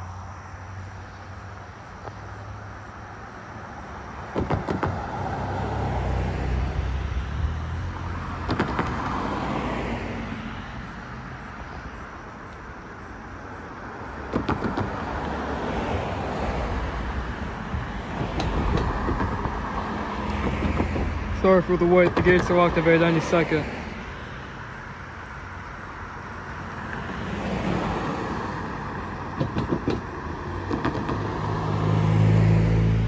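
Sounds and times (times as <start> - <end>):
passing traffic: 0.0 - 33.0
tyres thumping over rails: 4.3 - 5.2, 8.4 - 9.1, 14.2 - 15.2, 17.7 - 23.4, 29.2 - 31.4.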